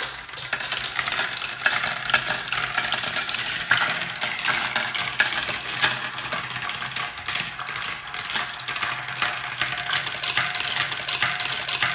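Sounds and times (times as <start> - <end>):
glass marbles rattling on plastic track: 0.0 - 11.9
marbles clacking onto glass jar: 0.0 - 11.9.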